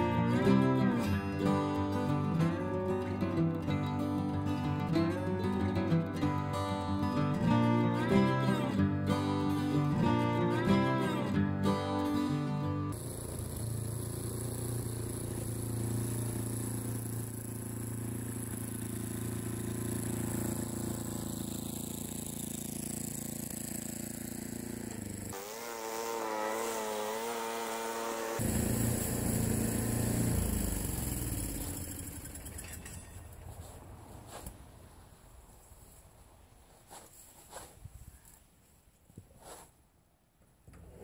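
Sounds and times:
snowblower engine running: 12.2 - 34.5.

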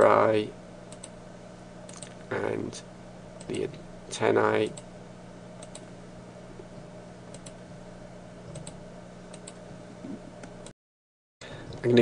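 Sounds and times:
steady low hum: 0.0 - 10.7, 11.4 - 12.0
computer mouse clicks: 5.6 - 5.9, 7.3 - 7.6, 8.5 - 9.6.

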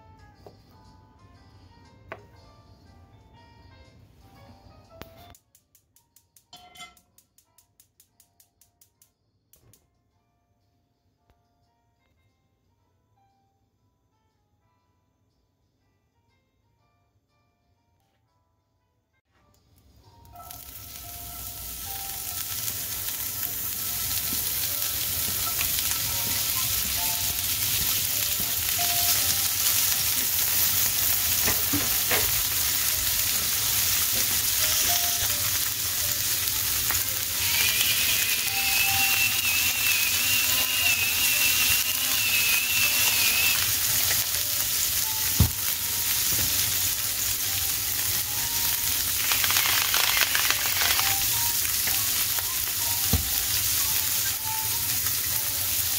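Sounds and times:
food sizzling in oil: 20.3 - 55.9
salt grinder grinding: 34.2 - 44.4, 49.0 - 52.3
thin wavering whistle: 37.5 - 43.7.

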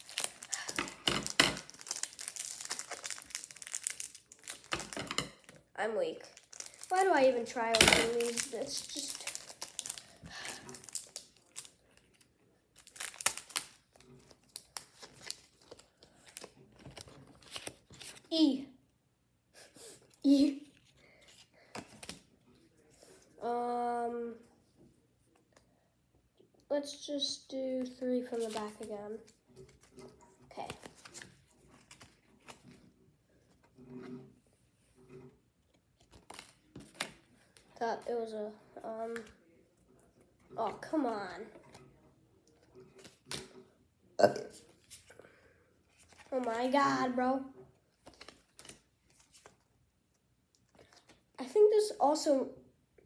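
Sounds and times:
foil wrapper crinkling: 0.0 - 5.6, 6.2 - 12.2, 12.8 - 18.2
trading cards clicking and rustling: 48.0 - 49.6.

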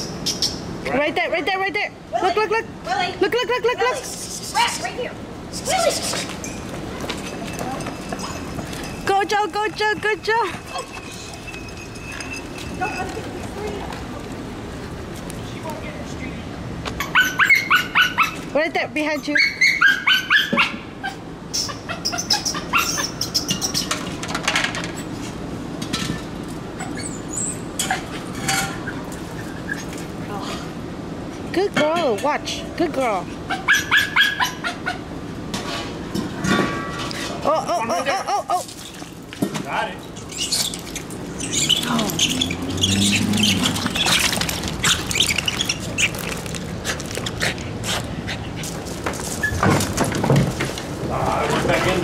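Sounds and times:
rat squealing: 21.5 - 24.0, 26.8 - 28.1, 40.1 - 46.6.

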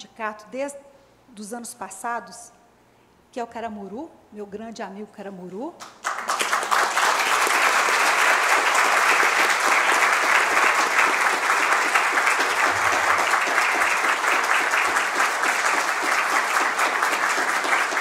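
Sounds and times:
audience applauding: 6.0 - 18.0.

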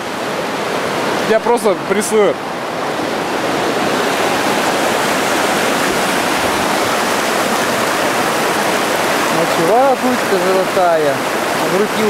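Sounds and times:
whitewater rapids rushing: 0.0 - 12.0.

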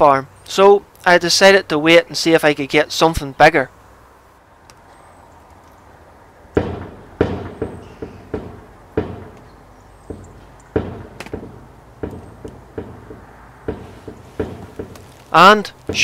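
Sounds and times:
gate banging: 6.6 - 16.0.

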